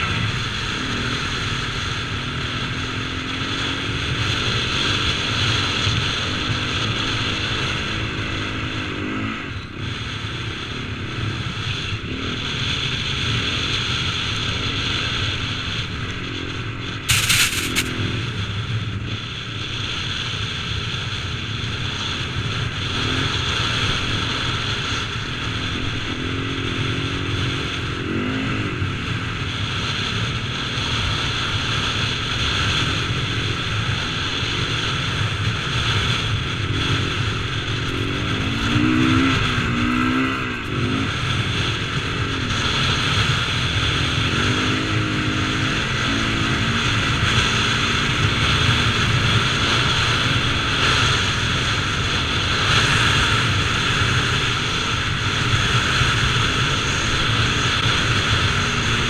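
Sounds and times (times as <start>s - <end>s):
motocross bike engine revving: 10.8s - 18.4s, 22.0s - 59.0s.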